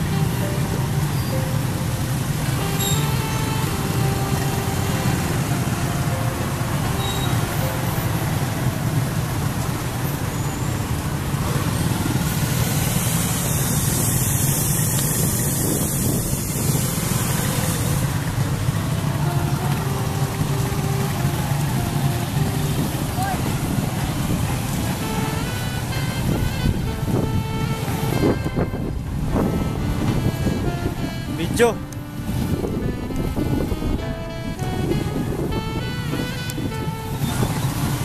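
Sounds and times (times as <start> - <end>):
motorcycle engines droning: 0.0 - 38.0
road hiss: 0.0 - 38.0.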